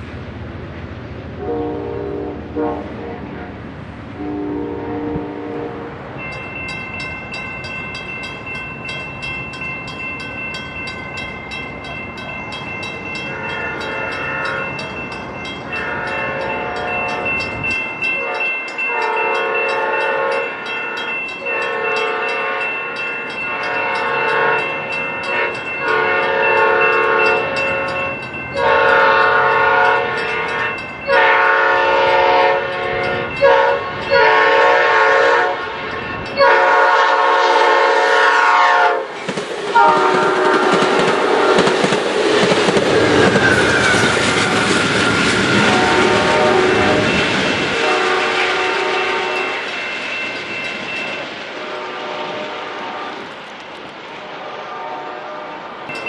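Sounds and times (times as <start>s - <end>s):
locomotive air horn blasts: 1.4s - 3.5s, 4.2s - 6.0s, 15.7s - 17.3s, 18.2s - 39.1s, 39.8s - 41.7s, 45.6s - 47.2s, 47.8s - 49.5s, 54.4s - 55.6s.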